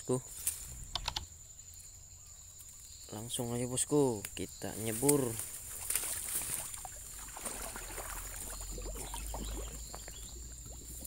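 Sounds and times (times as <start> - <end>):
water sloshing and splashing: 5.0 - 11.0.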